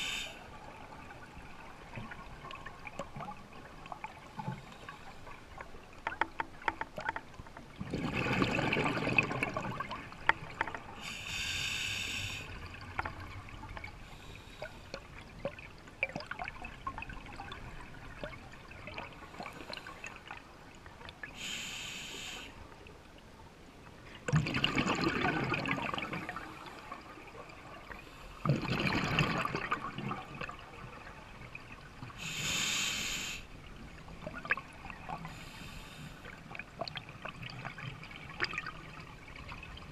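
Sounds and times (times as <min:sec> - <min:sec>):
exhaled bubbles rushing: 0:07.8 - 0:10.2, 0:24.3 - 0:26.5, 0:28.4 - 0:31.0.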